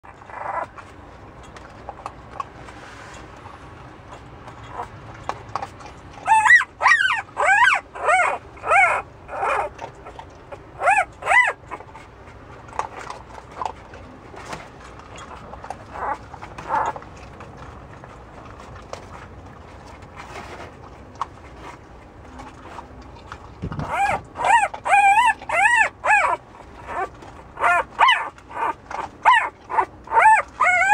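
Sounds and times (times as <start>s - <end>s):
puppy whimpering: 0.0s - 1.0s, 4.1s - 14.5s, 15.1s - 17.1s, 22.4s - 30.9s.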